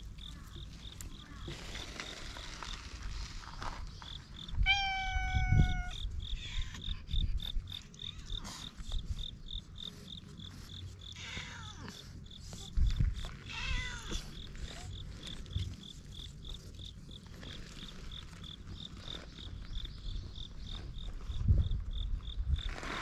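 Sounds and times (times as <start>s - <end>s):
insect chirping: 0.0s - 22.8s
cats meowing: 4.4s - 8.6s, 11.1s - 12.2s, 13.4s - 14.9s.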